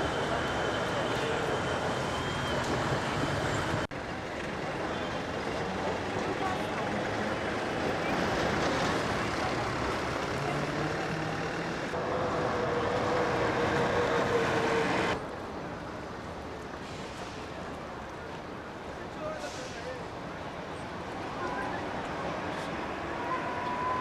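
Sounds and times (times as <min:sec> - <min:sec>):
bus engine drone: 0:00.0 - 0:18.9
vehicles passing on cobbles: 0:00.0 - 0:19.4
quiet street noise: 0:00.0 - 0:24.0.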